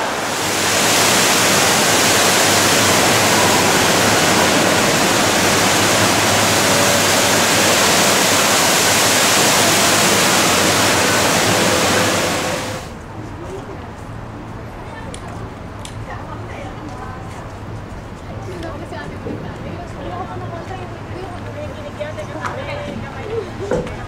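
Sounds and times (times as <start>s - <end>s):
indoor waterfall pouring: 0.0s - 13.0s.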